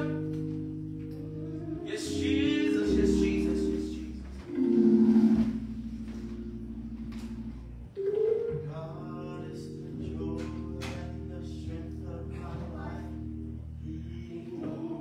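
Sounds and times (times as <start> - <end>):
held keyboard chords: 0.0 - 15.0.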